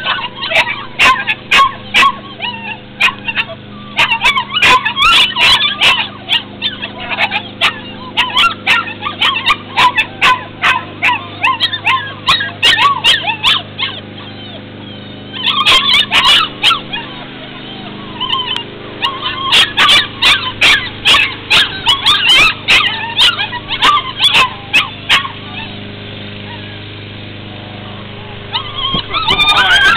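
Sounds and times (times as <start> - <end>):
dogs yipping and whining: 0.0 - 27.0, 27.8 - 29.9
steady low hum: 0.0 - 29.9.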